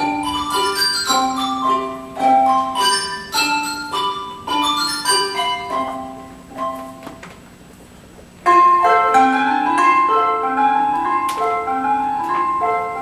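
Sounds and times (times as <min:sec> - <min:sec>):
handbell choir ringing a melody: 0:00.0 - 0:06.8.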